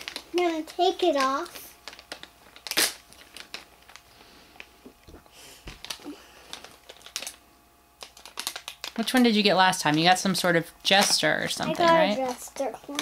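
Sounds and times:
rustling and crinkling handling noise: 0.0 - 10.3, 10.9 - 13.0.

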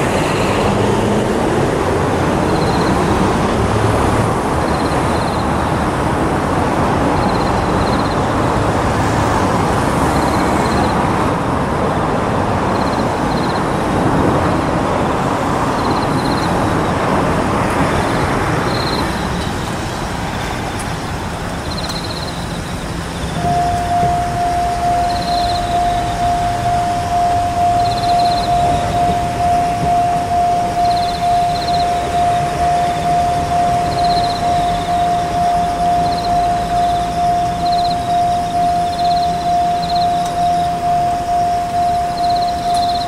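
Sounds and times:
electric train rumbling: 0.0 - 43.0
train horn steady tone: 23.4 - 43.0.

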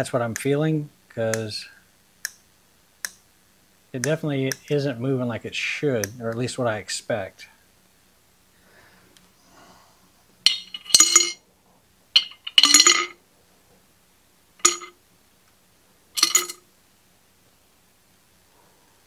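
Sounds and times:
metal parts clinking in glass jar: 10.5 - 11.4, 12.2 - 13.2, 14.6 - 14.9, 16.2 - 16.6.

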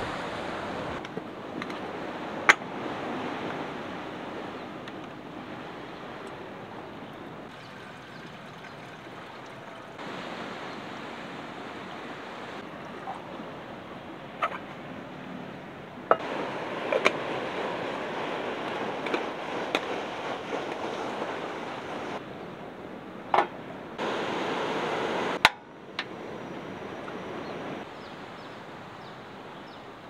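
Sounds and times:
surf washing: 0.0 - 22.4, 23.6 - 30.0
water running into metal kettle: 7.5 - 10.0.

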